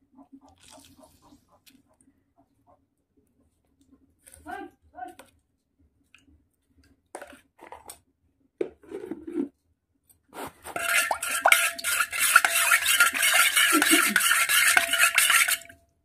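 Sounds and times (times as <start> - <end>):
spoon stirring in metal bowl: 10.7 - 15.8.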